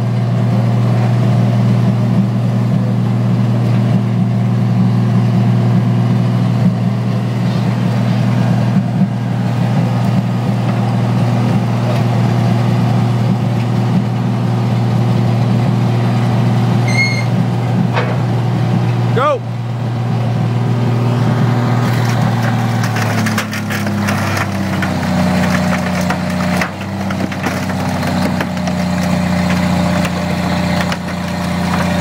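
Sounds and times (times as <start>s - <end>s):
forklift engine droning: 0.0s - 32.0s
high squeal: 16.8s - 17.4s
hydraulic gas engine running: 16.9s - 32.0s.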